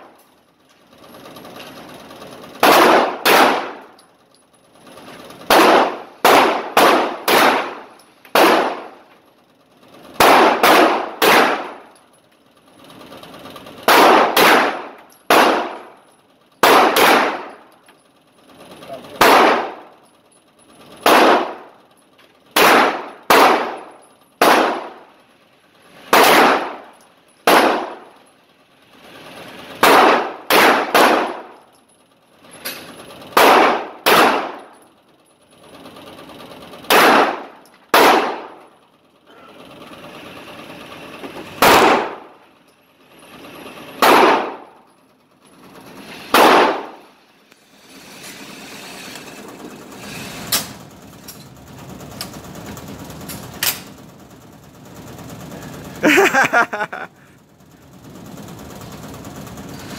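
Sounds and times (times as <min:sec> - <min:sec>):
handgun shots indoors: 0:02.6 - 0:03.9, 0:05.5 - 0:08.9, 0:10.2 - 0:11.8, 0:13.9 - 0:15.8, 0:16.6 - 0:17.6, 0:21.0 - 0:21.6, 0:22.6 - 0:24.9, 0:26.2 - 0:26.8, 0:27.4 - 0:28.0, 0:29.8 - 0:31.5, 0:33.4 - 0:34.7, 0:36.9 - 0:38.5, 0:41.6 - 0:42.2, 0:44.0 - 0:44.6, 0:46.3 - 0:47.0.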